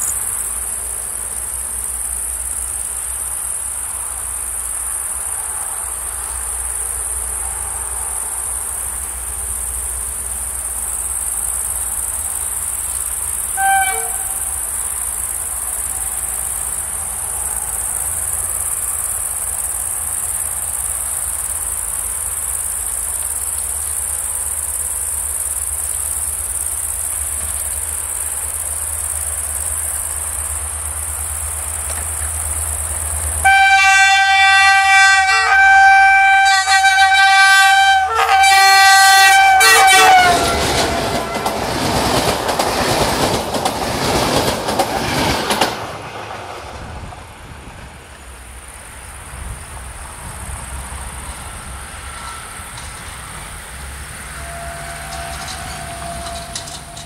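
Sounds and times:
crickets chirping: 0:00.0 - 0:57.0
locomotive horn blast: 0:13.5 - 0:14.6, 0:33.4 - 0:41.8, 0:52.0 - 0:57.0.

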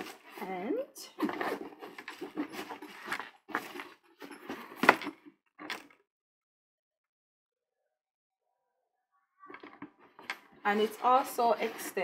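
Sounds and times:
fabric bag rustling: 0:00.0 - 0:05.0.

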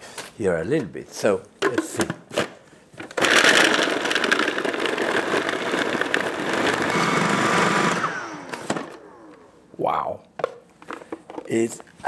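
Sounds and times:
food processor motor running: 0:03.2 - 0:09.3.

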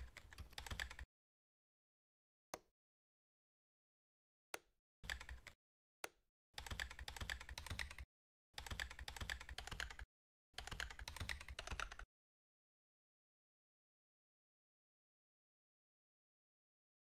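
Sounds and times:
computer keyboard typing: 0:00.0 - 0:01.1, 0:05.0 - 0:05.6, 0:06.6 - 0:12.1.

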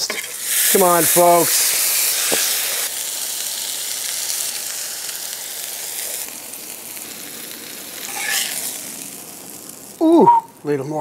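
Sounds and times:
patty sizzling on a griddle: 0:00.0 - 0:11.0
metal spatula scraping a plate: 0:08.1 - 0:08.6.

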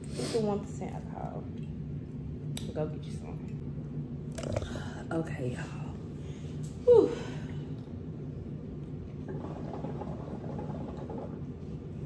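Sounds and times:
low hum: 0:00.0 - 0:12.0
hookah water bubbling: 0:04.2 - 0:05.1, 0:08.9 - 0:12.0.

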